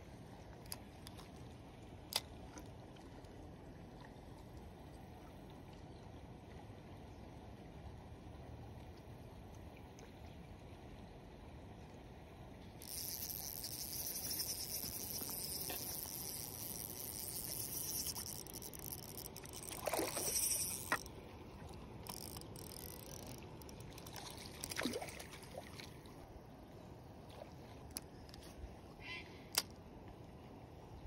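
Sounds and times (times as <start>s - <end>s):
fishing reel ticking whir: 12.8s - 21.1s, 22.0s - 24.9s, 29.5s - 29.7s
fish splashing: 12.9s - 21.1s.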